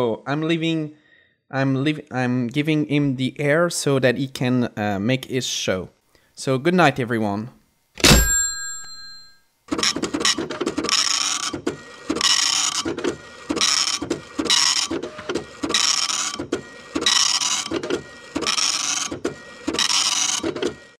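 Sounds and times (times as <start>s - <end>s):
rhythmic mechanical clatter: 9.7s - 20.9s.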